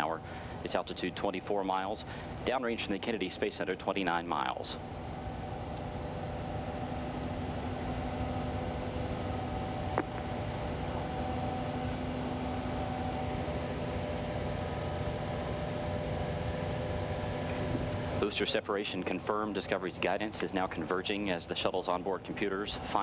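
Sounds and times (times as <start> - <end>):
faint steady tones hum: 0.0 - 23.0.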